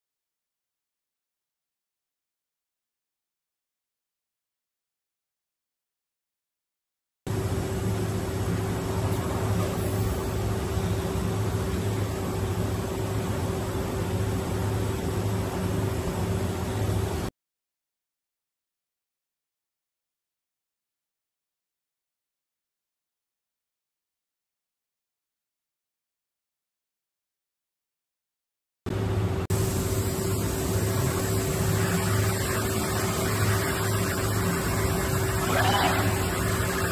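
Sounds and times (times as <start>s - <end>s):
machine hiss with constant tone: 7.3s - 17.3s, 29.1s - 36.9s
mid-pitched machine tone: 29.6s - 36.9s.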